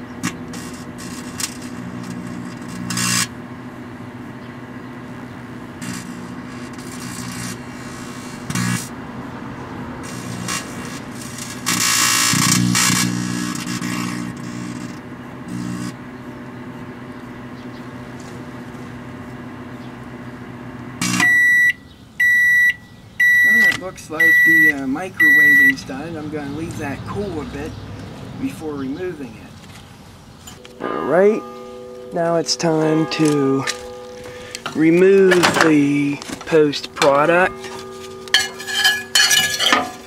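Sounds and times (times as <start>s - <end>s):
microwave oven humming: 0.0s - 26.2s
metal sparking and arcing: 0.2s - 3.3s, 5.8s - 8.9s, 10.0s - 15.9s, 30.5s - 40.0s
microwave beep: 21.0s - 25.8s.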